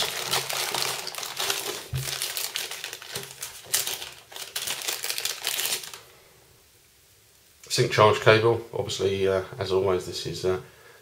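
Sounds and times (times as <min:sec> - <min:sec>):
plastic packaging crinkling: 0:00.0 - 0:06.1.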